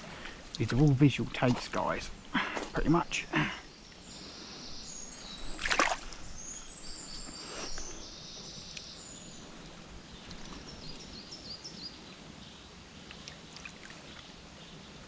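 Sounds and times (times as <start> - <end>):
birds chirping: 0.0 - 15.0
fish splashing in water: 5.5 - 6.3, 13.1 - 14.2.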